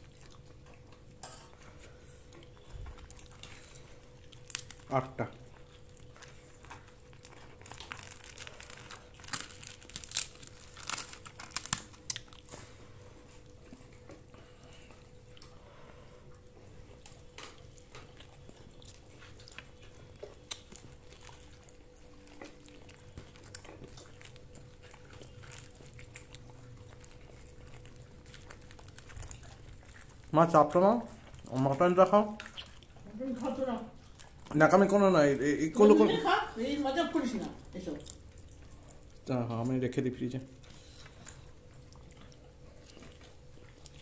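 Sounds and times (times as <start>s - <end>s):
small clicks and crinkles: 0.0s - 4.9s, 5.6s - 15.6s, 16.4s - 34.6s
person chewing food: 0.0s - 36.6s, 37.3s - 39.8s, 40.4s - 44.0s
food tearing: 2.5s - 5.1s, 5.7s - 12.8s, 17.0s - 33.4s.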